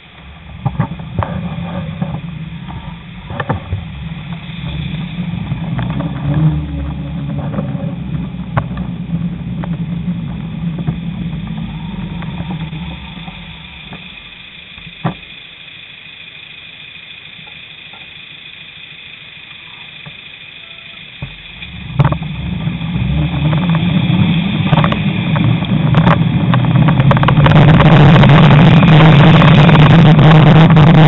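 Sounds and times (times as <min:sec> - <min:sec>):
car engines and tyres rumbling: 0:00.0 - 0:31.0.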